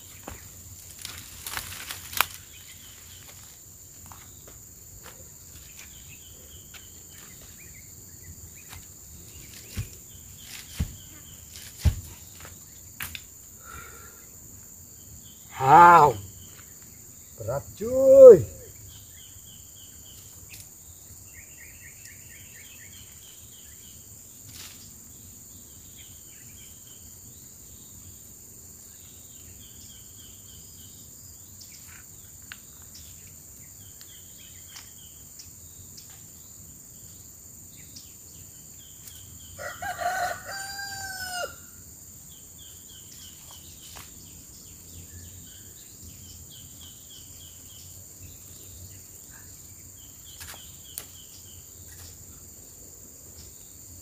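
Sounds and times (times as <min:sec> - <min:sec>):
insects trilling in pulses: 0:00.0 - 0:54.0
rooster crowing: 0:39.6 - 0:41.8.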